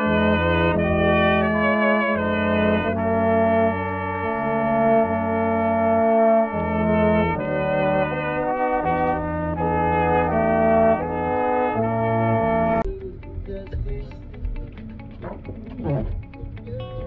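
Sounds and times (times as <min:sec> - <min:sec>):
brass ensemble playing chorale: 0:00.0 - 0:12.9.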